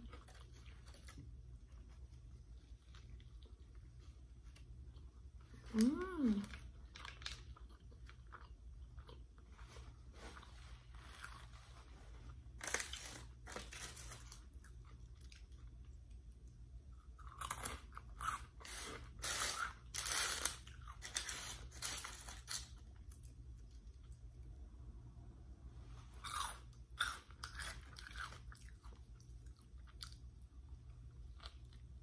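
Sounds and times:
soft chewing: 0.0 - 24.7, 25.8 - 32.0
crunching snacks: 6.4 - 9.3, 12.5 - 15.7, 17.0 - 24.0, 26.2 - 30.2.

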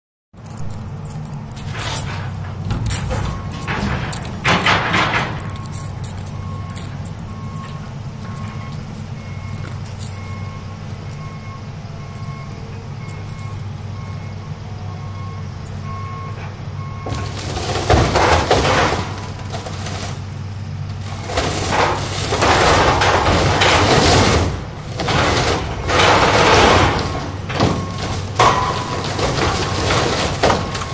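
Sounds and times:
fibreglass crunching and crashing: 0.4 - 10.3, 17.0 - 30.9
excavator diesel engine droning: 0.4 - 30.9
reversing alarm beeping: 2.7 - 17.8, 25.1 - 30.9.

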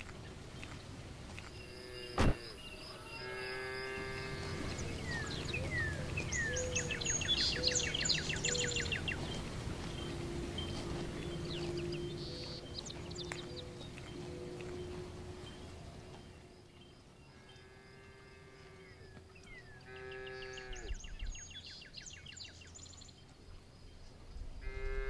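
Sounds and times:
birds singing and chirping: 0.0 - 25.0
outdoor background noise: 0.0 - 25.0
truck door slamming: 2.2 - 2.4.

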